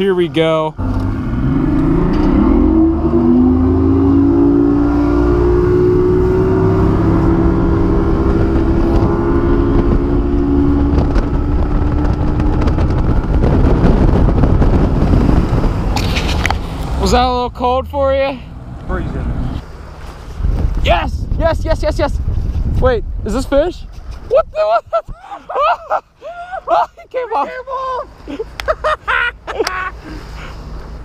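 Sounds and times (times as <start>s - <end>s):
wind on microphone: 0.8s - 17.4s, 20.2s - 25.2s.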